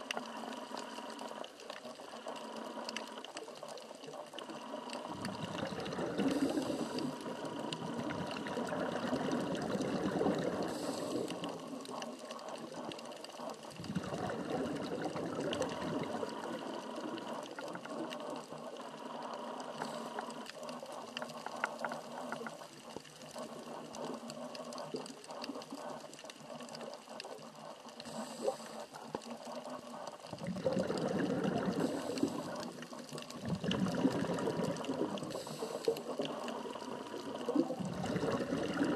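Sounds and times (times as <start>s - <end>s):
exhaled bubbles underwater: 0.0s - 38.9s
diver breathing through regulator: 4.4s - 22.7s, 27.9s - 29.1s, 30.3s - 38.9s.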